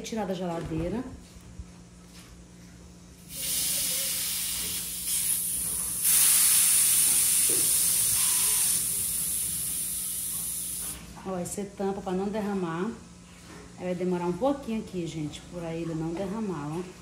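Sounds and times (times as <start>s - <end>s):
gas hissing from plastic bottle: 3.3s - 11.0s.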